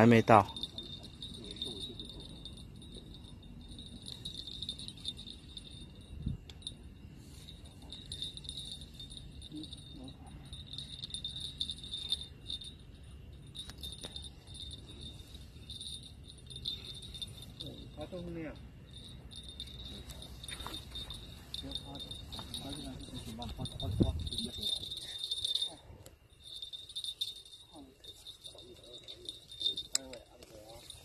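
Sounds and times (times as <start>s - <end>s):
crickets chirring: 0.0s - 31.0s.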